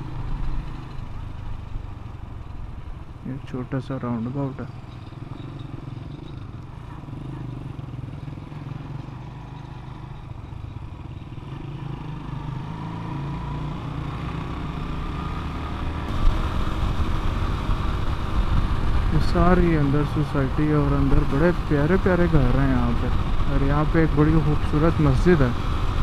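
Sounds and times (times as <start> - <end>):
motorcycle engine running: 0.0 - 26.0
wind rumble on microphone: 16.1 - 21.4.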